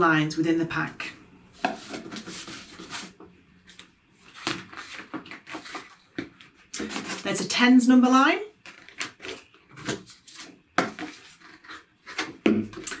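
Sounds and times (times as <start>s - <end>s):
card sheets rustling and tapping: 1.6s - 7.2s.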